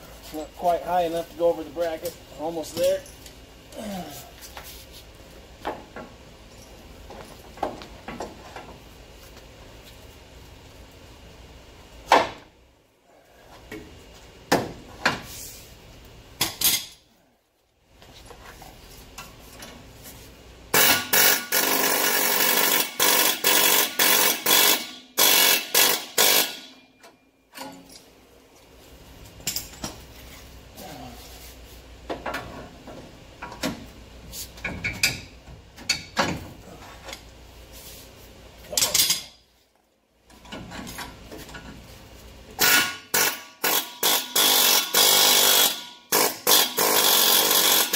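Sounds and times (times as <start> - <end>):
pneumatic air hammer rattling: 20.7 - 26.9, 42.6 - 47.9.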